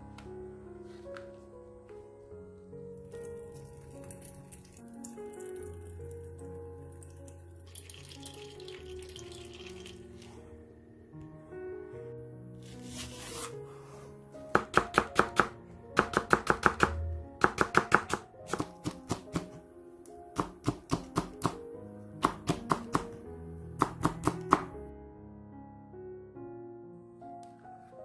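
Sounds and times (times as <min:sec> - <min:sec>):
soft background music: 0:00.0 - 0:28.0
knife tapping on cutting board: 0:14.6 - 0:19.5.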